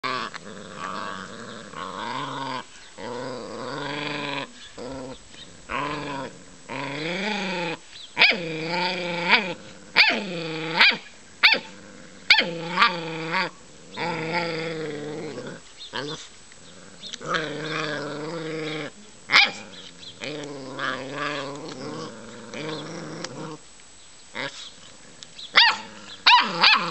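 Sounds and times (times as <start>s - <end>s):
puppies growling: 0.0s - 23.7s, 24.3s - 26.9s
puppy barks: 25.6s - 26.9s.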